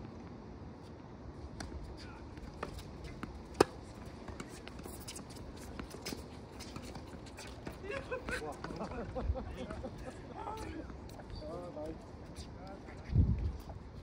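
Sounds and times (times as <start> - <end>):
tennis ball struck by rackets: 2.6 - 5.0.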